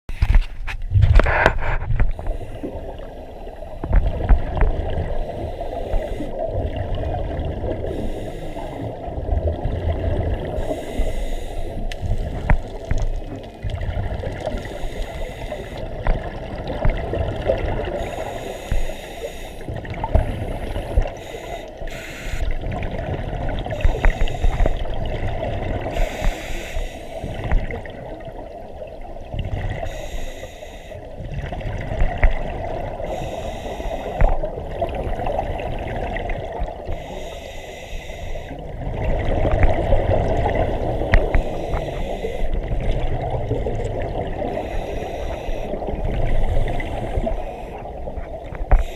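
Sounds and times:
exhaled air bubbling: 0:00.1 - 0:48.9
regulator hiss on inhale: 0:01.3 - 0:04.0, 0:05.2 - 0:06.4, 0:07.8 - 0:09.0, 0:10.5 - 0:13.3, 0:14.5 - 0:16.0, 0:17.8 - 0:22.6, 0:23.7 - 0:25.0, 0:25.8 - 0:27.6, 0:29.8 - 0:31.1, 0:33.0 - 0:34.8, 0:36.6 - 0:38.6, 0:40.6 - 0:42.8, 0:44.4 - 0:48.9.

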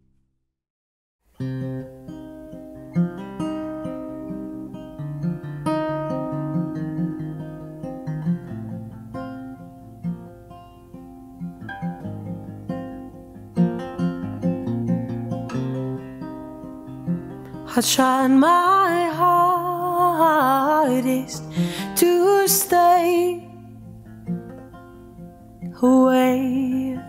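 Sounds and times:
acoustic guitar playing: 0:01.3 - 0:27.0.

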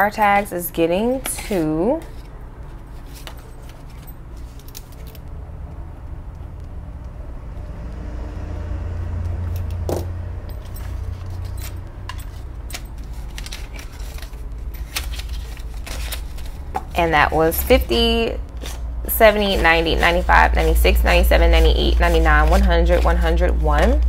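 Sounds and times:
banknotes rustling: 0:00.0 - 0:05.4, 0:10.4 - 0:24.0
low rumble: 0:05.2 - 0:12.6.

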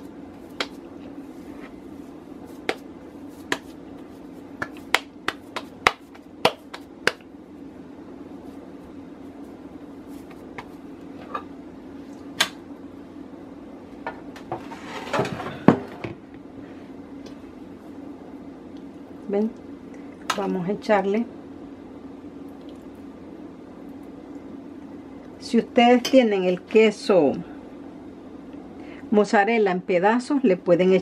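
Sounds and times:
hands patting dough: 0:00.0 - 0:07.4, 0:08.4 - 0:11.1
steady low hum: 0:00.0 - 0:31.0
clattering scrape: 0:14.6 - 0:15.6.

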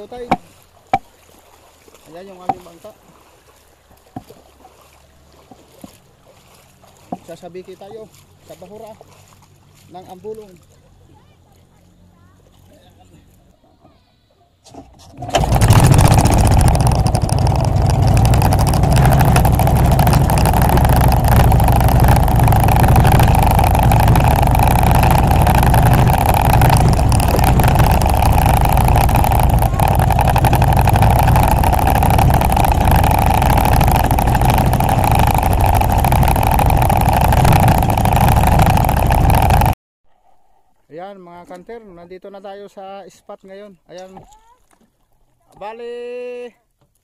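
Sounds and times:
boat motor droning: 0:14.6 - 0:39.8.

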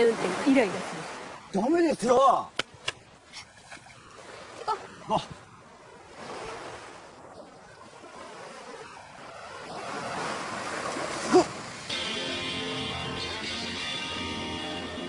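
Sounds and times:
surf washing on beach: 0:00.0 - 0:14.2
wind: 0:00.0 - 0:15.0
background music: 0:11.9 - 0:15.0.

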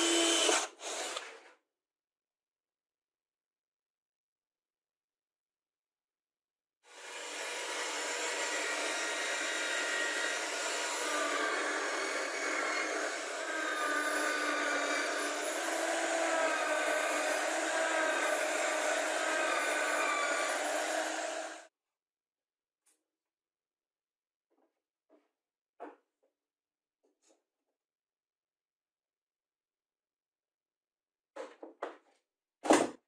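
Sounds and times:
electric drill boring wood: 0:00.0 - 0:01.4, 0:06.9 - 0:21.7.

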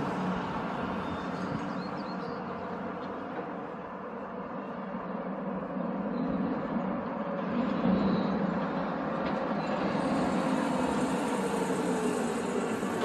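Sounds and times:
passing vehicle rumble: 0:00.0 - 0:13.0.

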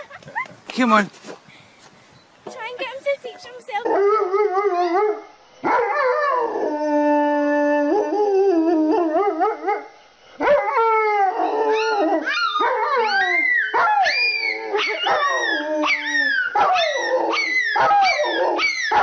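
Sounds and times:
dog howling: 0:03.8 - 0:09.8, 0:10.4 - 0:19.0.

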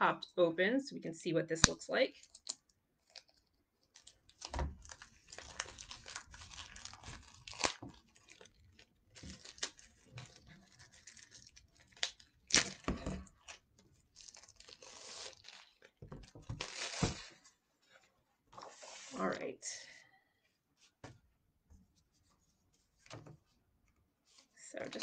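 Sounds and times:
plastic wrap crinkling and tearing: 0:02.2 - 0:17.3.

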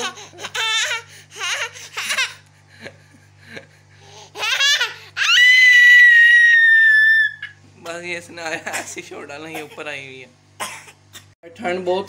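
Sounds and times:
small boy laughing: 0:00.0 - 0:07.6.

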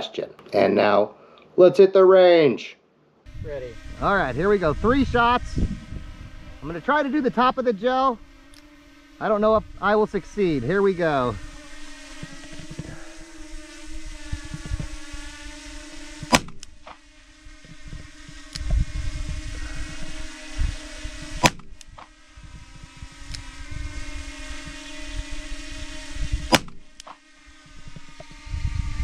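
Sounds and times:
revolver shots cracking: 0:16.2 - 0:17.0, 0:21.4 - 0:22.1, 0:26.5 - 0:27.2.

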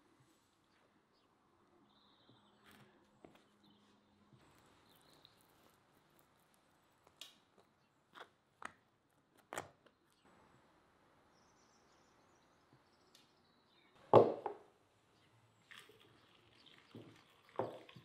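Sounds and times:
glass teapot knocking on wooden table: 0:14.2 - 0:14.6, 0:17.6 - 0:18.0.

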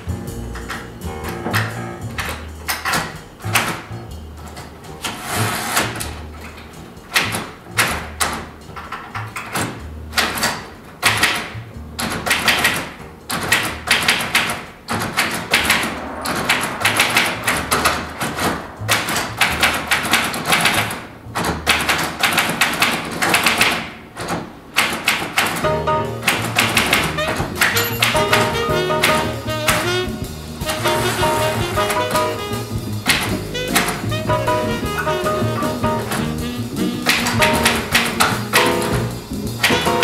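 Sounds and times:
typewriter keys clacking: 0:01.6 - 0:15.5, 0:18.9 - 0:29.9, 0:35.6 - 0:40.0.

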